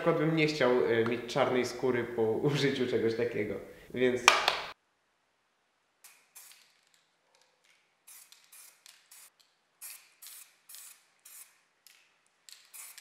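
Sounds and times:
aerosol spray can hissing: 0:06.1 - 0:06.7, 0:08.1 - 0:11.6, 0:12.5 - 0:13.0.

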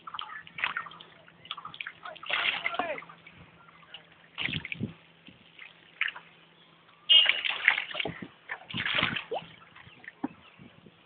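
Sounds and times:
water splashing against a boat: 0:00.0 - 0:06.4, 0:07.1 - 0:10.8.

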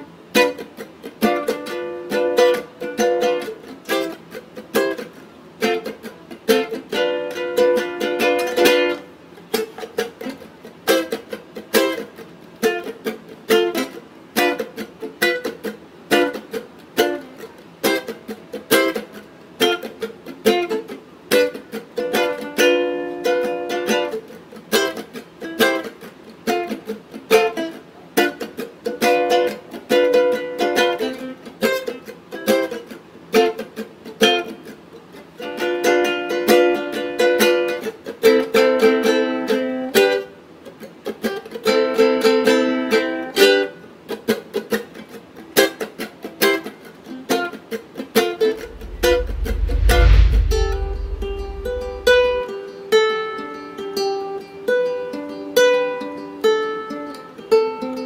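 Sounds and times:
ukulele playing: 0:00.3 - 0:09.0.

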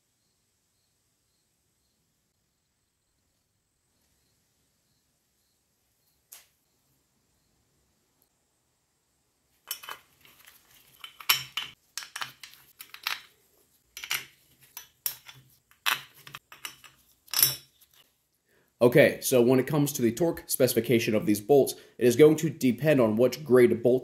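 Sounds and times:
metal bolts clinking: 0:09.7 - 0:13.3, 0:14.0 - 0:17.8.

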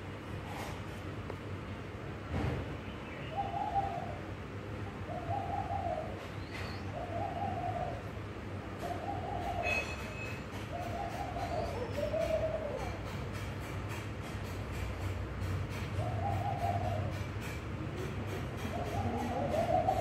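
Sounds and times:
dove cooing: 0:03.3 - 0:04.3, 0:04.9 - 0:13.3, 0:16.0 - 0:17.3, 0:18.0 - 0:20.0.

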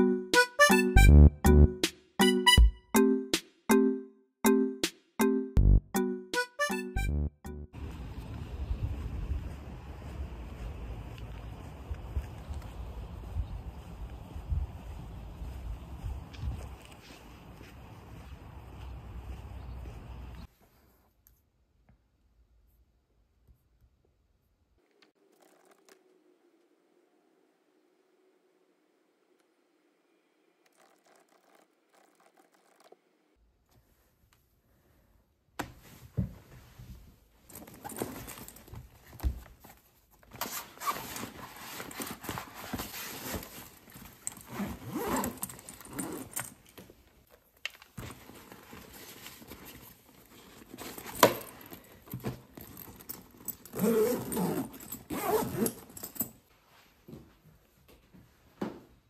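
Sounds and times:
zippers running: 0:25.2 - 0:26.3, 0:30.6 - 0:33.0, 0:40.4 - 0:46.6, 0:48.4 - 0:56.2
fabric rustling: 0:35.8 - 0:57.1
items shuffled inside backpack: 0:35.9 - 0:56.9.

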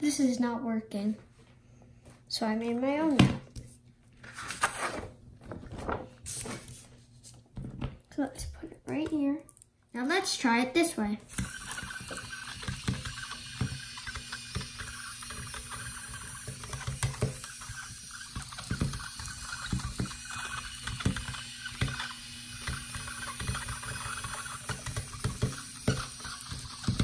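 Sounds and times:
small wheel motors whirring: 0:11.3 - 0:27.0.

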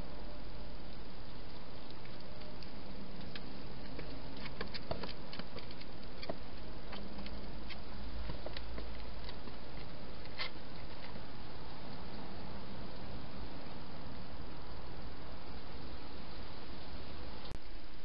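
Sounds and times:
steady hiss: 0:00.0 - 0:18.0
hedgehog clicks and patters: 0:00.9 - 0:12.3.

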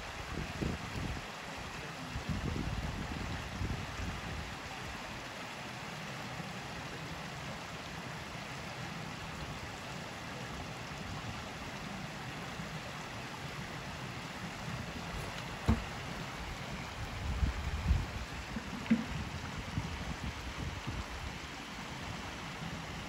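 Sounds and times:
creek water running: 0:00.0 - 0:23.0
short sharp knock: 0:15.2 - 0:15.9.

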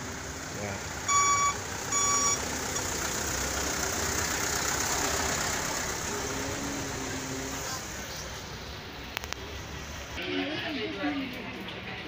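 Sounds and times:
engines in slow traffic: 0:00.0 - 0:10.2
electronic beep: 0:01.1 - 0:02.4.

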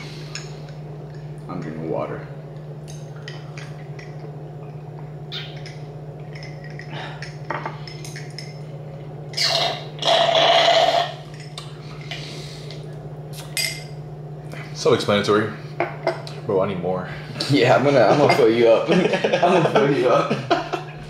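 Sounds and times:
slurping through a straw: 0:09.4 - 0:11.2.

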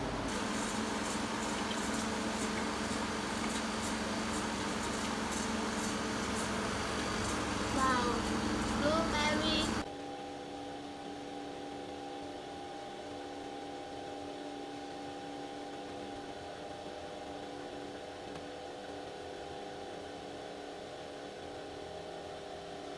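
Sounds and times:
batch freezer mechanical hum: 0:00.0 - 0:22.9.

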